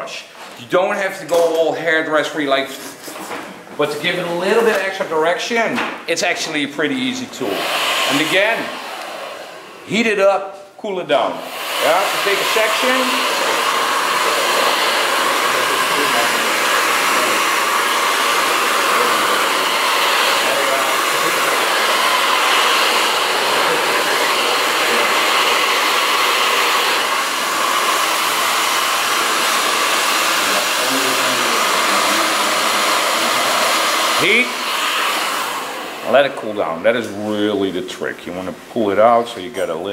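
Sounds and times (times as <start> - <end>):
hair dryer running: 7.0 - 10.2, 11.2 - 37.1.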